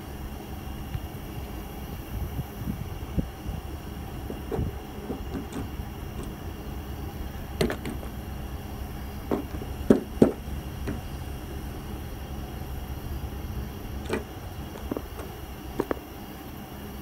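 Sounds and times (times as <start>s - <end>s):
steady low rumble: 0.0s - 17.0s
hailstones knocking on vehicle: 4.2s - 6.4s, 7.5s - 8.2s, 9.1s - 11.3s, 14.0s - 16.0s.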